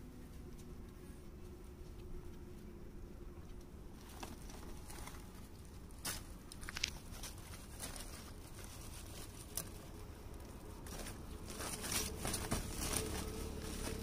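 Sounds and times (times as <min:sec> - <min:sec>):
plastic sack rustling and crinkling: 0:10.7 - 0:14.0.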